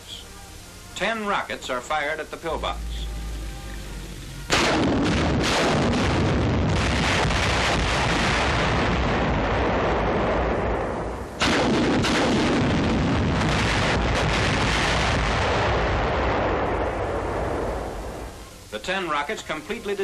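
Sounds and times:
rockets exploding: 0:04.5 - 0:18.5.

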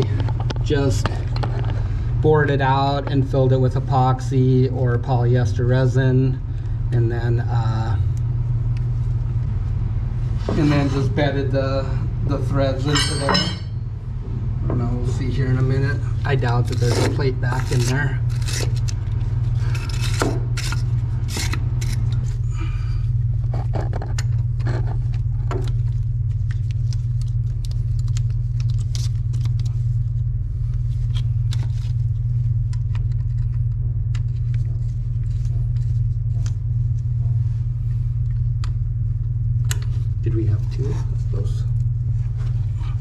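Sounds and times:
low machine hum: 0:00.0 - 0:43.0
metal hand tools clinking: 0:12.9 - 0:13.7.

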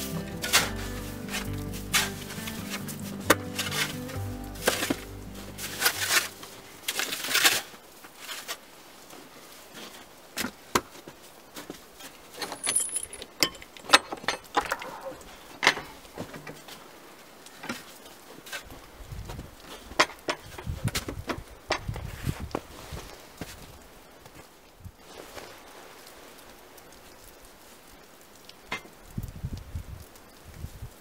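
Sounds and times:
footsteps crunching in snow: 0:00.0 - 0:10.1
snow scraping: 0:00.0 - 0:10.1.

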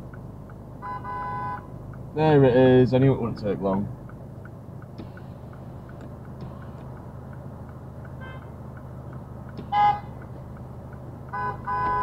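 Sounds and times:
car engine humming: 0:00.0 - 0:12.0
car horn blast: 0:00.8 - 0:01.8, 0:08.2 - 0:08.6, 0:09.6 - 0:10.2, 0:11.3 - 0:12.0
faint short car horn: 0:11.4 - 0:12.0.

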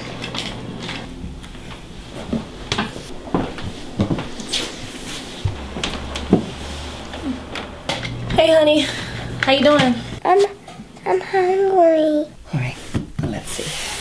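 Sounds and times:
low hum: 0:00.2 - 0:10.2
kitchen items knocking and clattering: 0:05.4 - 0:10.1.

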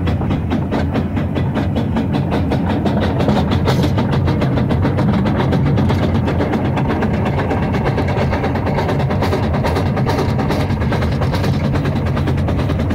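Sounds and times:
low engine rumble: 0:00.0 - 0:12.9
steam locomotive chuffing: 0:00.0 - 0:12.9.

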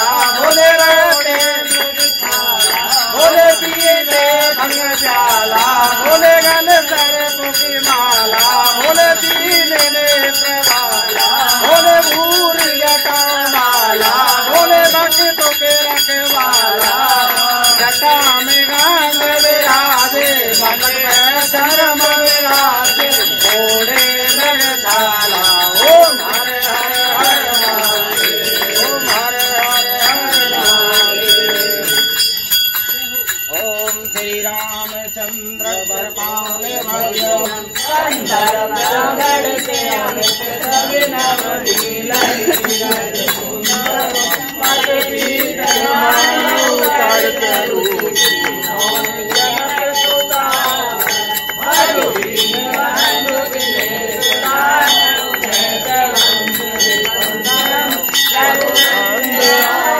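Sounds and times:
rhythmic percussion clatter: 0:00.0 - 0:59.9
small bells ringing: 0:00.0 - 0:59.9
voices chanting: 0:00.0 - 0:59.9.

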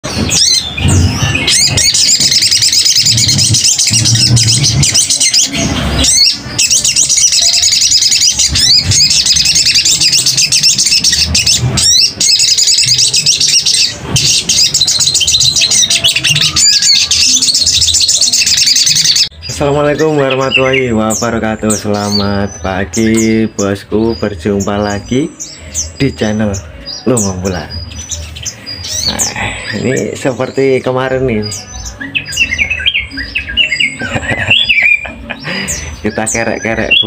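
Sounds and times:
bird twittering song: 0:00.0 - 0:37.0.

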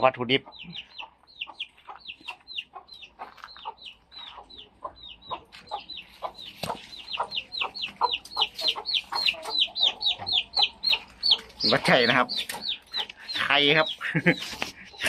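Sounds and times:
chickens calling: 0:00.0 - 0:15.0.

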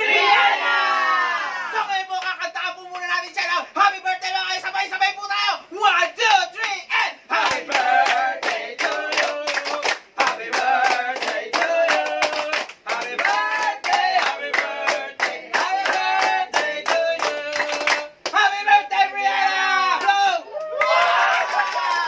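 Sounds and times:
group singing birthday song: 0:00.0 - 0:01.7, 0:07.0 - 0:20.0
rhythmic clapping: 0:06.6 - 0:18.5.

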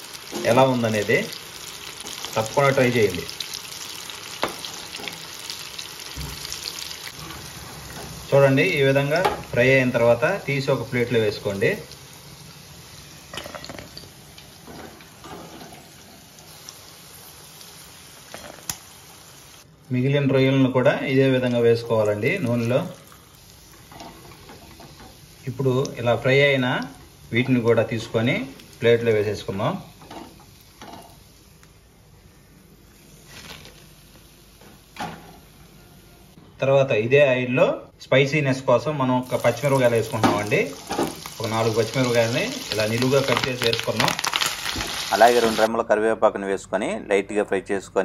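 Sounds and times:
hot oil bubbling: 0:00.0 - 0:19.7, 0:21.2 - 0:31.6, 0:39.2 - 0:45.7.

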